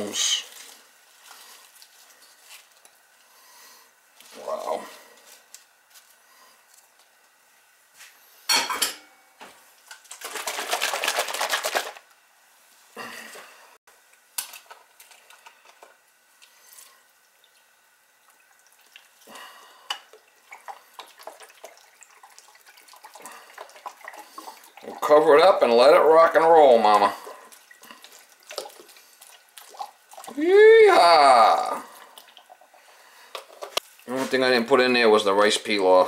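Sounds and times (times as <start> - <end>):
seasoning shaken from paper packet: 10.0 - 12.1.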